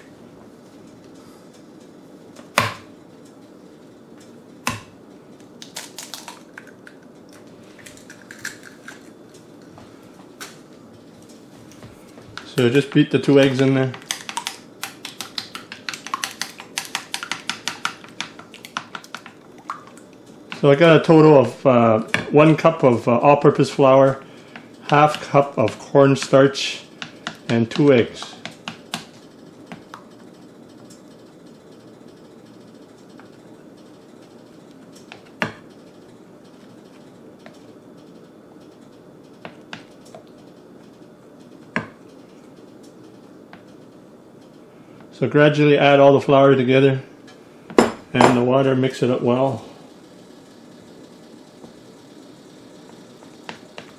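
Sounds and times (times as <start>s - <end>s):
low room hum: 0.0s - 53.9s
chopsticks stirring flour: 12.4s - 19.4s, 23.6s - 29.0s
utensils clicking on ceramic bowl: 13.9s - 19.4s.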